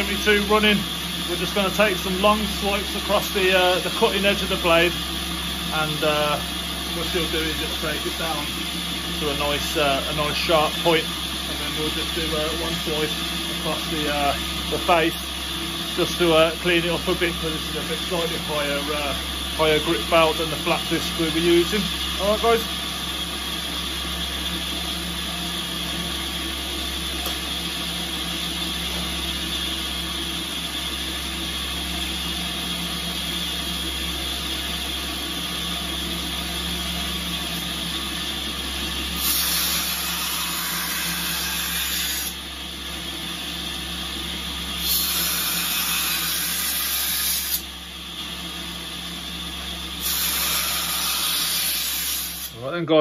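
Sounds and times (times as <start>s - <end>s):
belt grinder running: 0.0s - 52.6s
blade grinding on belt hiss: 39.1s - 42.4s, 44.7s - 47.7s, 50.0s - 52.6s.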